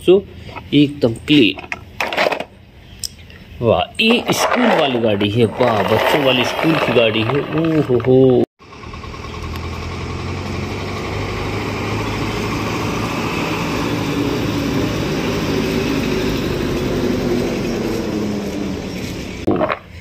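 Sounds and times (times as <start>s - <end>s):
bus engine driving past: 8.6s - 19.5s.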